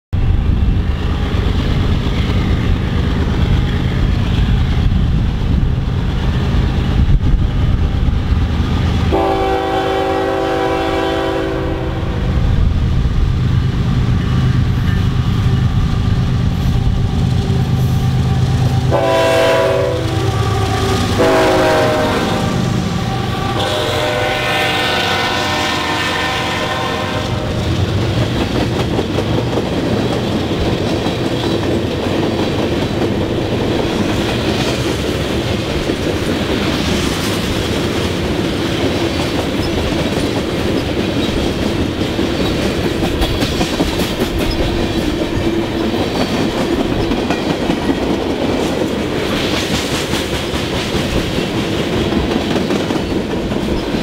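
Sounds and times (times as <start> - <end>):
train air horn blasts: 9.1 - 12.4, 17.8 - 27.8
freight cars rolling on rails: 12.2 - 54.0.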